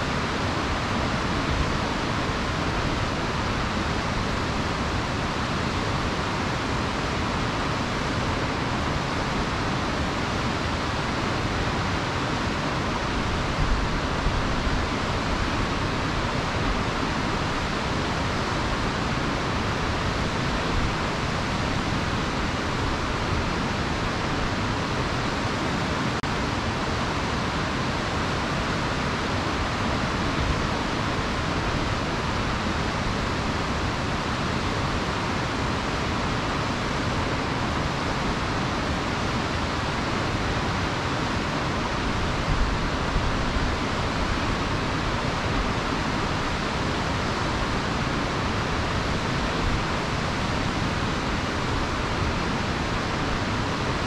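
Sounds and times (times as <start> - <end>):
river water rushing: 0.0 - 54.0.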